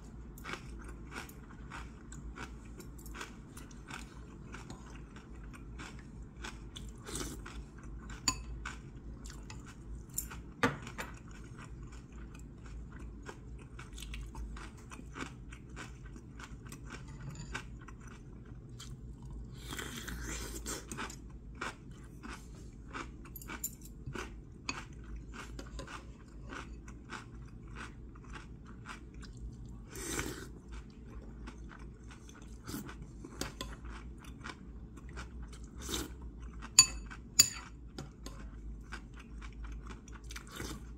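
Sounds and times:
person chewing and crunching food: 0.0 - 40.9
chopsticks and spoon clicking on bowl: 36.8 - 38.1.

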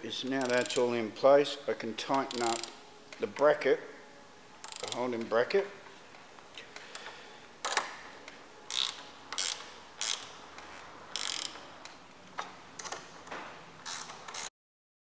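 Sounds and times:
hand ratchet clicking: 0.4 - 0.9, 2.0 - 2.8, 4.6 - 5.1, 8.7 - 12.0, 13.8 - 14.5.

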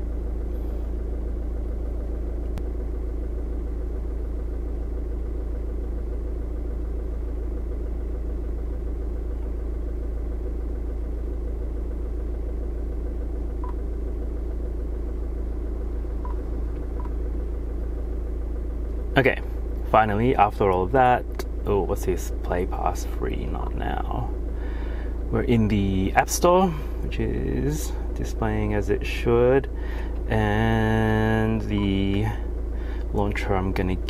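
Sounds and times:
car engine idling: 0.0 - 34.0.

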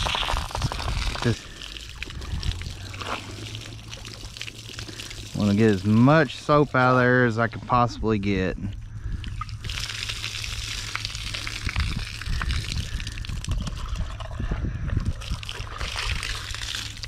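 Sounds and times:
hose water spraying on shoe: 0.0 - 7.5, 9.4 - 13.2, 15.4 - 17.0.

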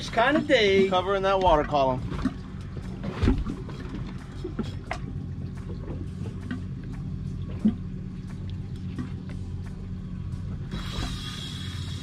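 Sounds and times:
steady low hum: 0.0 - 12.0
water lapping against boat hull: 0.0 - 12.0.

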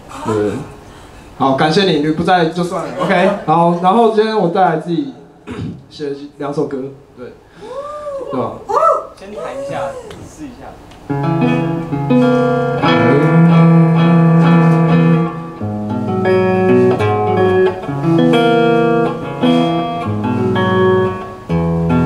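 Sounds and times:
guitar chords strummed: 11.1 - 22.0.

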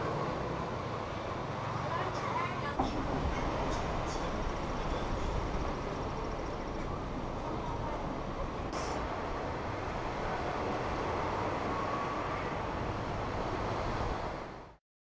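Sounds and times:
wind: 0.0 - 14.8.

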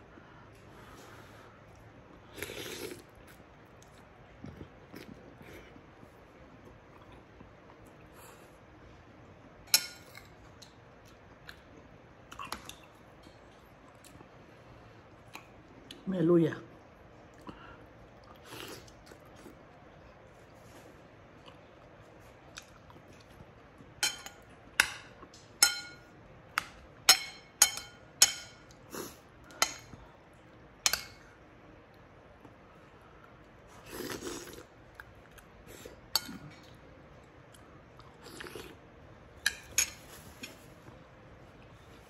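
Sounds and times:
cutlery clinking on ceramic bowl: 24.0 - 26.1, 27.1 - 28.7, 39.4 - 40.0.

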